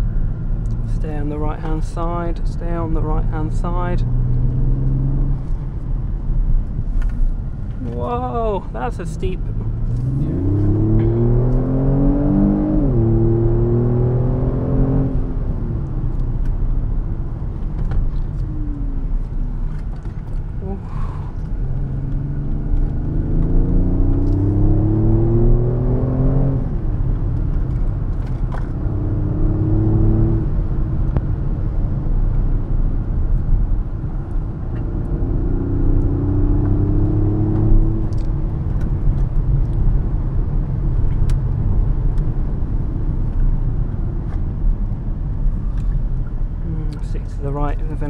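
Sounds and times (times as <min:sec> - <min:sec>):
car engine revving: 0:00.0 - 0:05.9, 0:08.9 - 0:32.2, 0:33.9 - 0:48.0
tyre and road rumble: 0:00.0 - 0:48.0.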